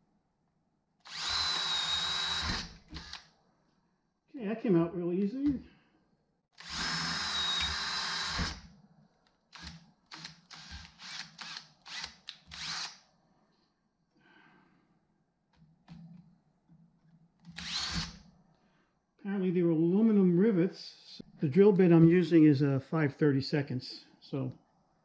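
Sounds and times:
power drill drilling rivets: 1.1s - 3.3s, 6.6s - 8.6s, 9.5s - 13.0s, 17.5s - 18.2s.

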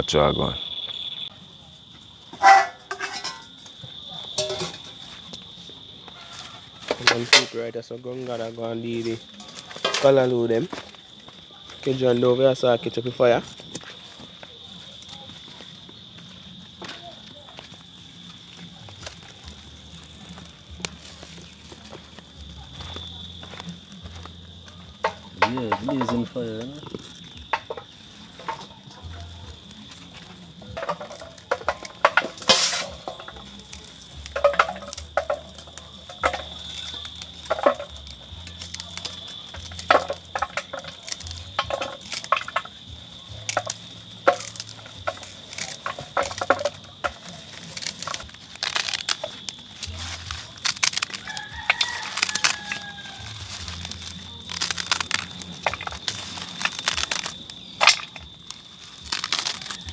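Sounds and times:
rooster crowing: 6.1s - 7.0s, 51.2s - 53.5s
crisp snaps and clicks: 17.6s - 59.9s.

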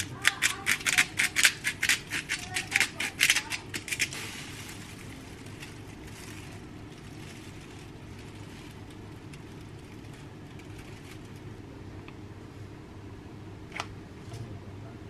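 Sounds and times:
plastic bag crinkling: 0.0s - 11.6s.

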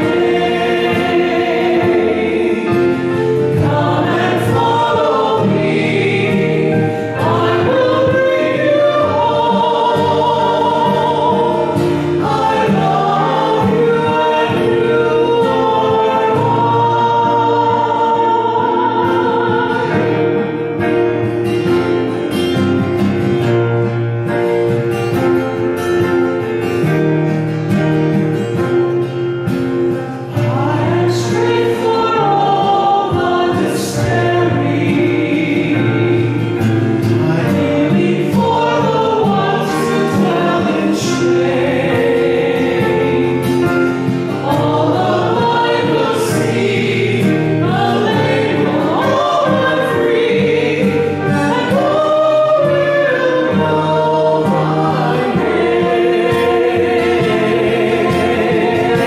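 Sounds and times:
hymn singing: 0.0s - 59.0s.

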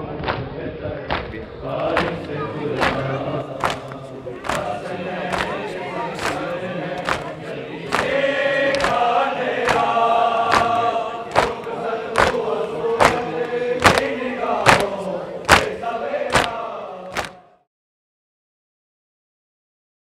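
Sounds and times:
men chanting in unison: 0.0s - 17.7s
chest beating: 2.8s - 16.6s.

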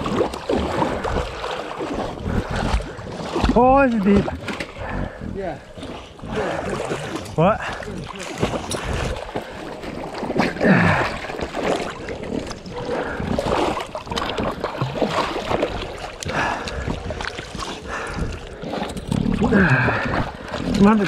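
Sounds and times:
dog splashing through water: 8.1s - 21.0s.

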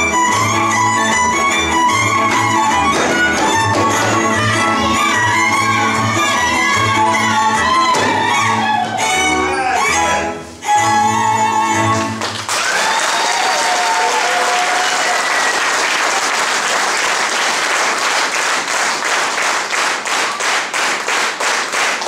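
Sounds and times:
rhythmic clapping in unison: 0.0s - 9.0s, 11.9s - 22.0s
folk dance music with fiddle: 0.0s - 12.4s
audience applause: 12.2s - 22.0s
audience cheering: 12.4s - 17.5s.

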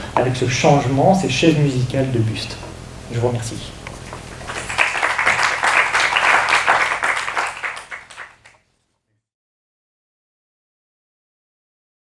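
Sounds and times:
audience applauding: 4.3s - 8.6s.

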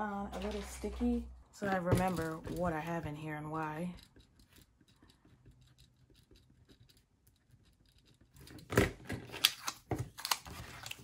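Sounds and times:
pen scratching on paper: 3.9s - 8.6s
paper crinkling and rustling: 9.2s - 11.0s.

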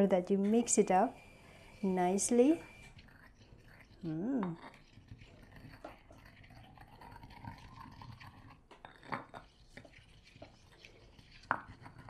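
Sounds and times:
wet scraping and squishing: 2.9s - 12.0s.

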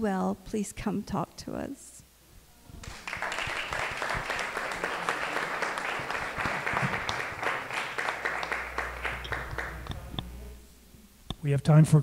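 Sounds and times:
audience applauding: 2.8s - 10.0s.

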